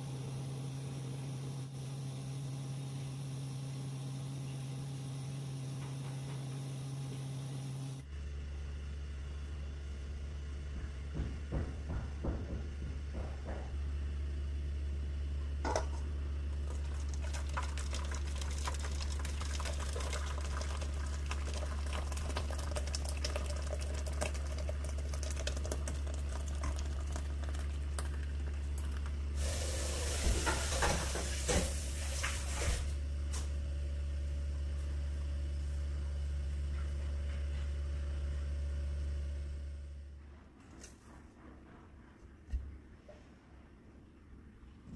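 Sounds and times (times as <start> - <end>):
steady low hum: 0.0 - 44.9
liquid pouring into tin: 16.6 - 30.9.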